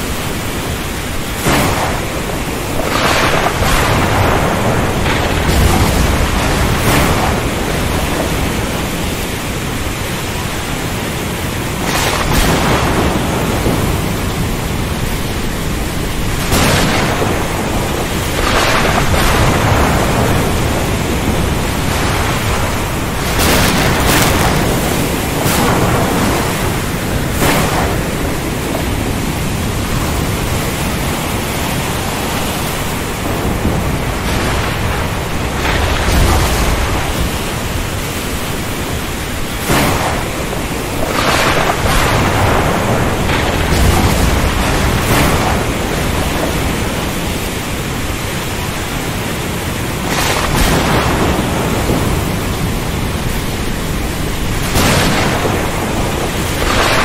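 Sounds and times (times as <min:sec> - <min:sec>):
heavy rain: 0:00.0 - 0:57.0
low thunder rumbles: 0:00.0 - 0:57.0
surf: 0:00.0 - 0:57.0
thunder cracks: 0:00.7 - 0:57.0.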